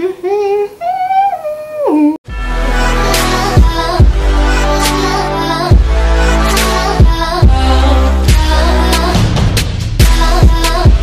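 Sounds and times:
background music with deep bass: 2.3s - 11.0s.

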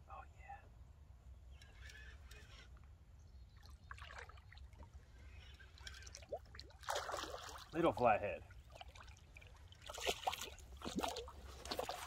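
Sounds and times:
water splashing and trickling: 3.6s - 12.0s.

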